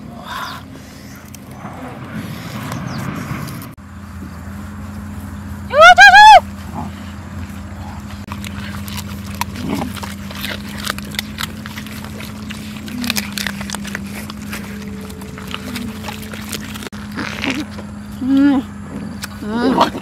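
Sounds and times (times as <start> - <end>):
steady low hum: 0.0 - 20.0
dogs chewing and crunching: 6.6 - 20.0.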